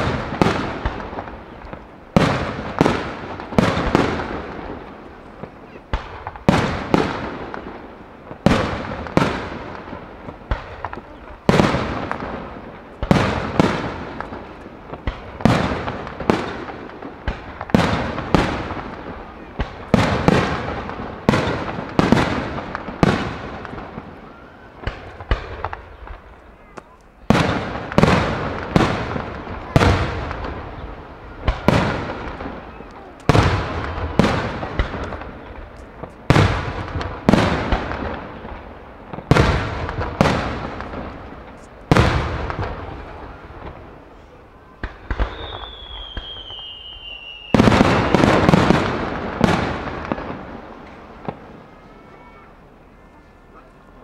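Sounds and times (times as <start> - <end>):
firework shells booming: 0.0 - 52.3
thin falling whistle: 45.3 - 47.6.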